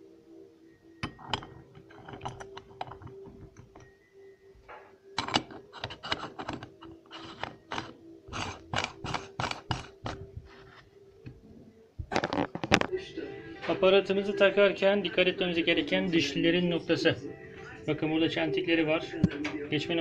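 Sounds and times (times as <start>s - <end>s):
metallic clicks and scrapes: 1.0s - 3.9s, 5.2s - 11.4s
metal plate clinking: 1.0s - 4.0s, 5.2s - 10.3s.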